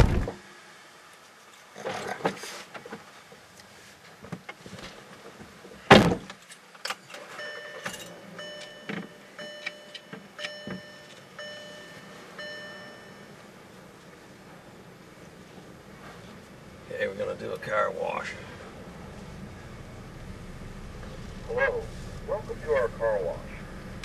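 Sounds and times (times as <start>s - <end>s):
loud thump on car seat: 0.0s - 0.4s, 5.9s - 6.3s
car warning chime dinging: 7.3s - 13.7s.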